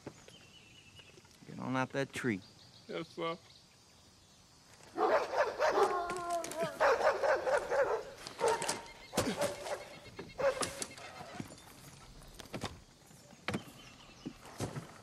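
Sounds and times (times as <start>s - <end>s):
dogs barking: 5.0s - 11.0s.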